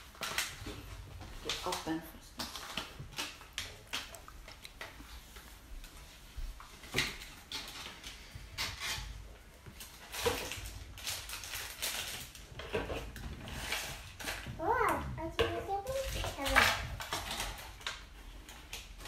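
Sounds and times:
plastic toy parts clattering: 15.4 - 19.0.

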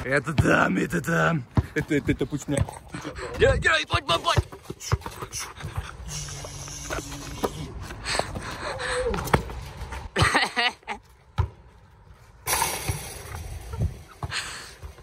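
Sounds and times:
basketball bouncing on asphalt: 0.0 - 10.4, 11.1 - 12.2.

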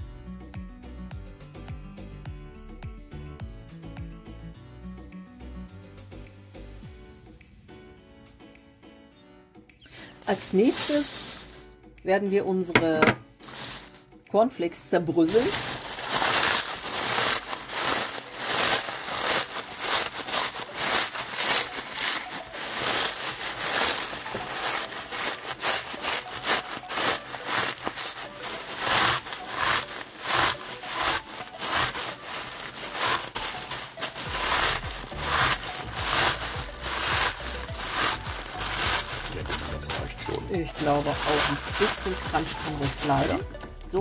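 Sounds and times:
cornflakes crunching: 10.0 - 11.6, 13.4 - 14.0, 15.3 - 43.4
plastic bag rustling: 10.0 - 11.6, 12.8 - 14.0, 15.2 - 43.7.

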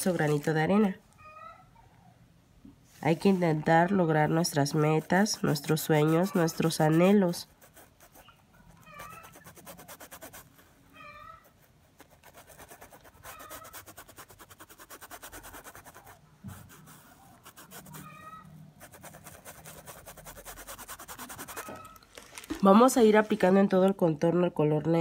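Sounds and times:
paintbrush scratching on fabric: 2.9 - 22.0.

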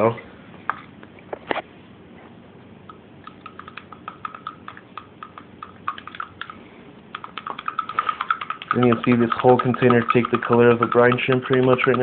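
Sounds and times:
plastic spoon stirring in cup: 3.3 - 12.0.

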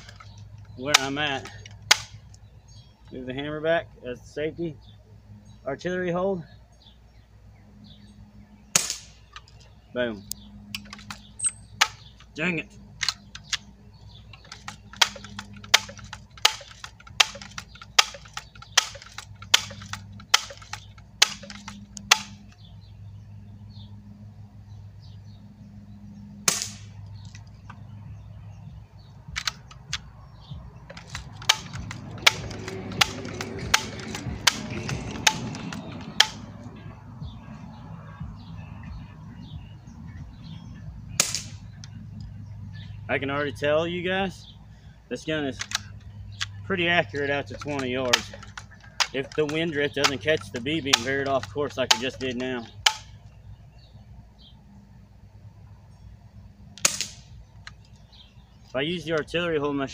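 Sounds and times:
air rifle firing pop: 8.7 - 9.2, 26.4 - 26.9, 31.0 - 36.5, 41.2 - 41.6, 56.8 - 57.3
rifle lever clicking: 14.4 - 22.4, 29.4 - 30.1, 30.9 - 36.4, 45.6 - 46.5.

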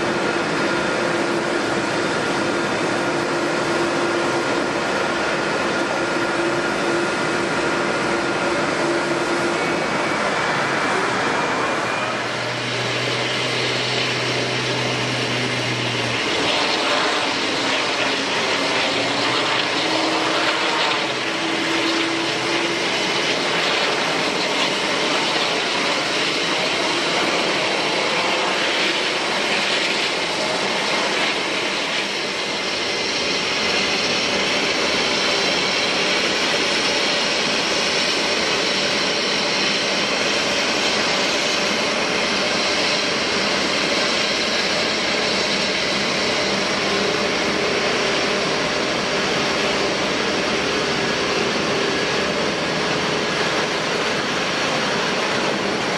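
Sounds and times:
jet engines rushing: 0.0 - 55.9.

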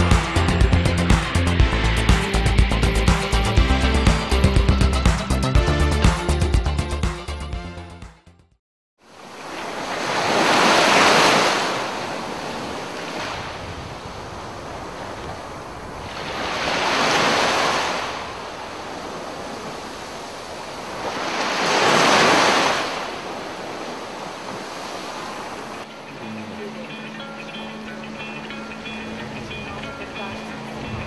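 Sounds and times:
waves breaking on beach: 9.0 - 31.0.

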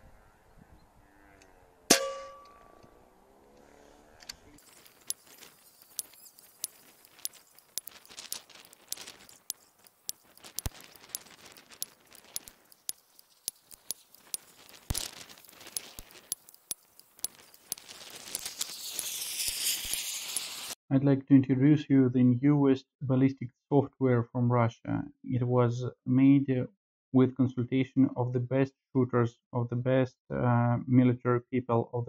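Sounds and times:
rising hiss: 17.0 - 20.8.

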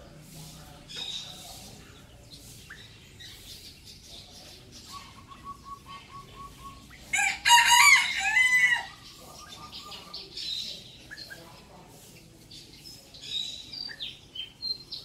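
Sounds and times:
rooster crowing: 7.1 - 8.9.

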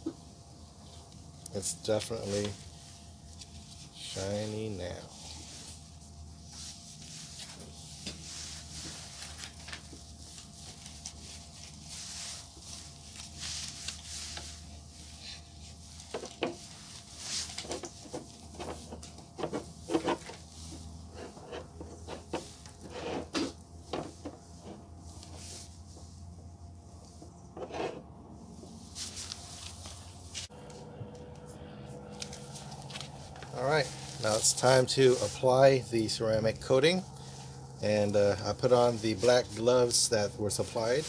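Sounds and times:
towel rubbing on plastic: 5.1 - 23.6, 33.8 - 35.6.

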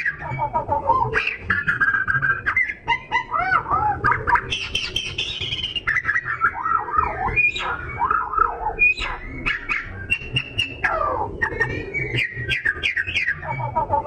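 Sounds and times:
bird singing whistled notes: 4.4 - 13.8.

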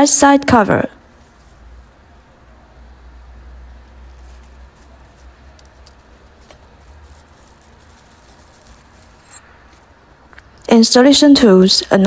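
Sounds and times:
low steady hum: 0.0 - 12.0
packaging wrap crinkling: 3.8 - 10.6.

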